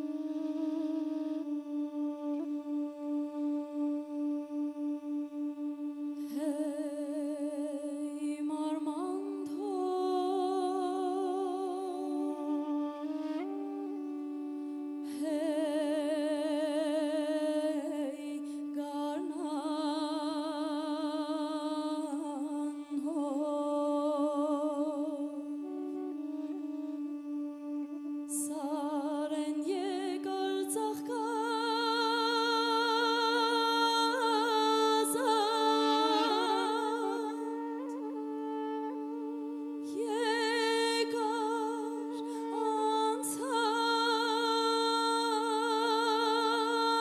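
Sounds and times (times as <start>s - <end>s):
duduk slow melody: 0.0s - 47.0s.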